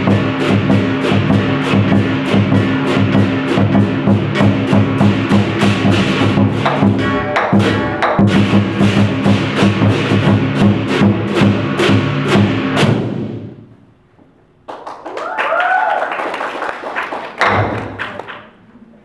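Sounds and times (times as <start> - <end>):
heavy drum hit: 0.0 - 13.6, 17.4 - 18.0
lion dance drum gong and cymbals: 0.0 - 13.6.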